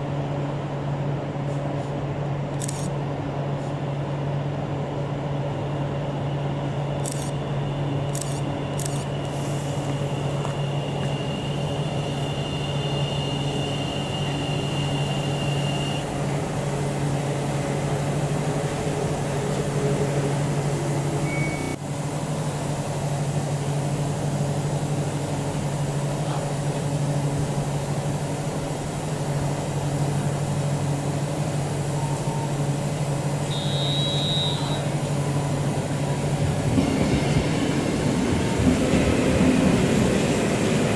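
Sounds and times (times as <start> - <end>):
electric train pulling in: 3.1 - 40.9
high brake squeal: 7.7 - 16.1, 21.2 - 21.8, 33.4 - 35.1
short high beep: 21.2 - 21.8, 33.5 - 34.9.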